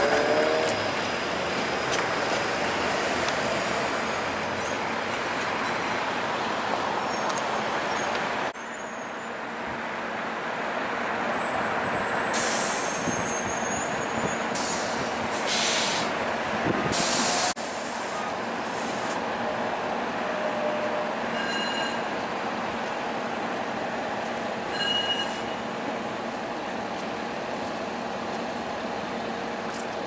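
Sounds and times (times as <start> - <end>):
streetcar rolling on track: 0.0 - 30.0
traffic noise: 0.0 - 30.0
air brake hisses: 12.3 - 13.4, 14.4 - 16.1, 16.9 - 19.2.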